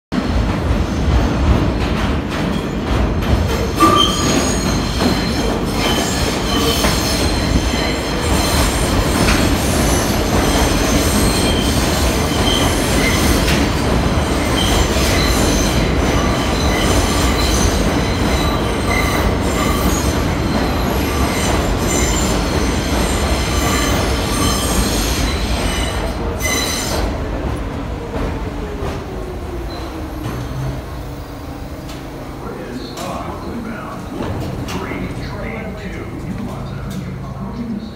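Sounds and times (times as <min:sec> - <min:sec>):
subway train wheels rumbling: 0:00.1 - 0:37.9
metallic wheel squeal: 0:03.8 - 0:08.6.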